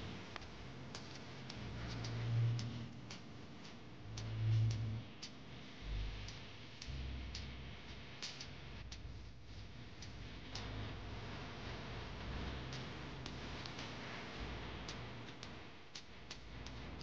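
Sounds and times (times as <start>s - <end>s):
low hum: 0.0s - 13.6s.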